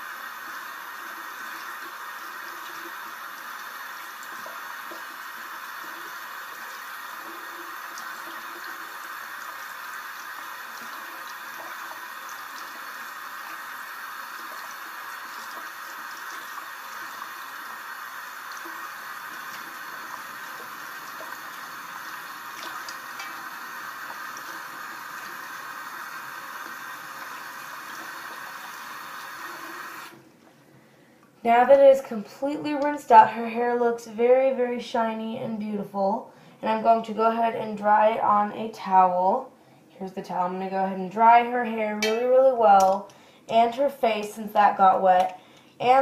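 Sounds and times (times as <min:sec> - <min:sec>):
faucet water running into basin: 0:00.0 - 0:30.2
faint ticks and drips: 0:00.2 - 0:29.3, 0:42.8 - 0:43.5, 0:44.9 - 0:45.8.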